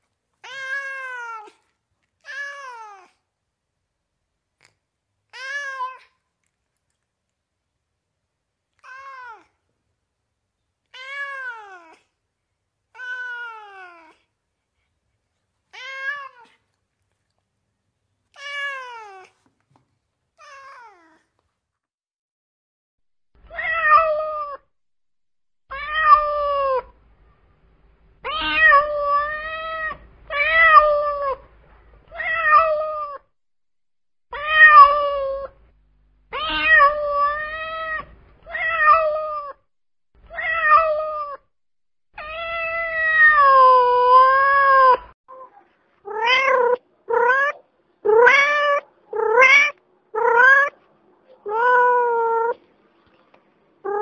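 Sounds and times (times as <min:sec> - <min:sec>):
cat meowing: 0:00.4 - 0:01.6, 0:05.4 - 0:06.2, 0:08.8 - 0:09.5, 0:10.9 - 0:12.0, 0:13.0 - 0:14.2, 0:15.7 - 0:16.6, 0:23.5 - 0:24.6, 0:25.7 - 0:26.9, 0:28.2 - 0:31.4, 0:32.1 - 0:33.2, 0:34.4 - 0:35.6, 0:36.3 - 0:39.6, 0:40.3 - 0:41.4, 0:42.2 - 0:45.1, 0:46.1 - 0:50.8, 0:51.4 - 0:52.6.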